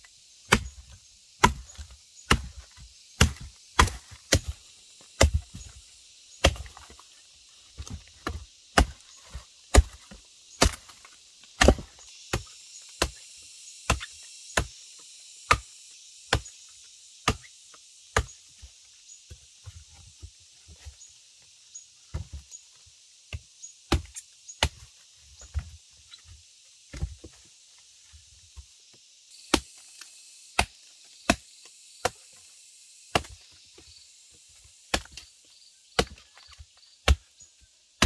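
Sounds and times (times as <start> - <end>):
blade chopping wood: 0.4 - 5.8, 6.4 - 7.0, 7.7 - 13.2, 13.8 - 14.8, 15.4 - 15.7, 16.3 - 16.5, 17.2 - 17.5, 18.1 - 18.4, 23.3 - 24.9, 29.4 - 32.3, 33.1 - 33.5, 34.9 - 35.3, 36.0 - 37.4.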